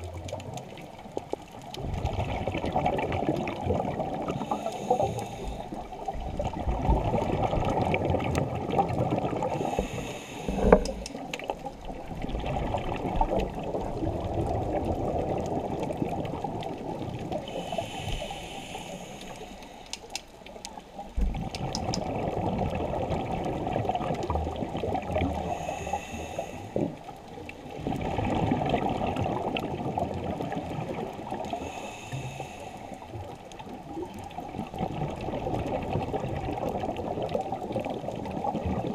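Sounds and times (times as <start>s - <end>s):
underwater regulator bubbling: 0.0s - 27.1s
regulator hiss: 9.6s - 11.2s, 17.5s - 20.1s, 25.4s - 26.8s, 31.6s - 33.0s.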